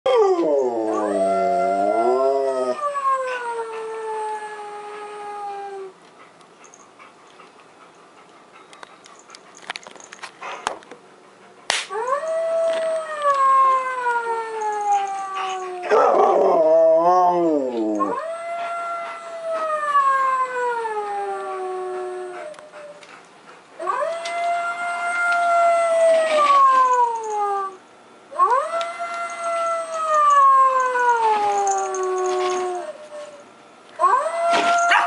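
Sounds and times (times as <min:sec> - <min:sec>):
recorded wolf howls: 0:00.1 - 0:06.0, 0:11.9 - 0:23.0, 0:23.8 - 0:33.4, 0:34.0 - 0:35.0.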